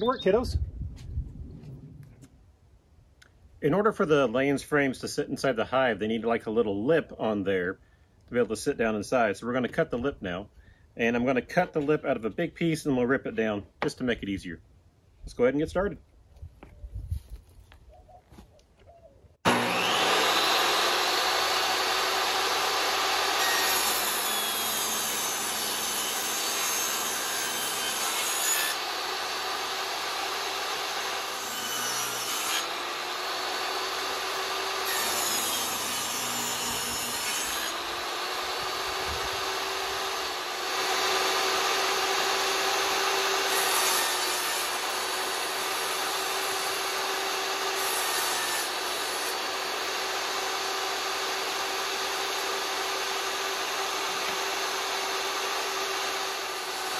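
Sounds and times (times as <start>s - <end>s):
table saw cutting wood: 19.4s - 56.9s.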